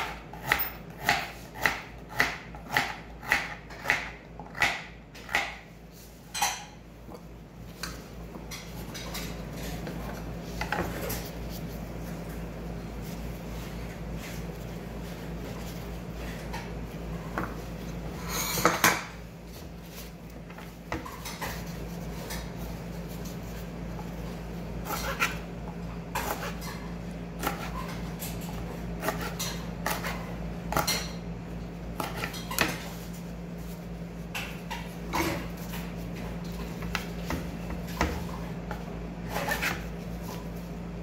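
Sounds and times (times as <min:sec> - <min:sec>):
knife chopping on cutting board: 0:00.0 - 0:05.7, 0:26.1 - 0:26.6, 0:27.4 - 0:27.9, 0:29.0 - 0:31.2, 0:39.2 - 0:39.9.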